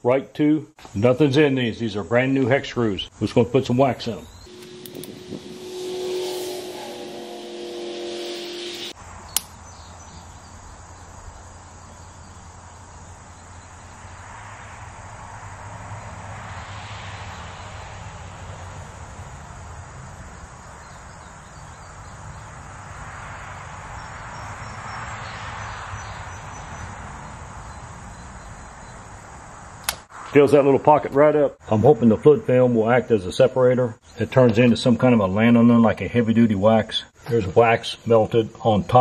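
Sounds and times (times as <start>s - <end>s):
low hum: 4.4s - 9.5s
soft hiss: 4.5s - 9.0s.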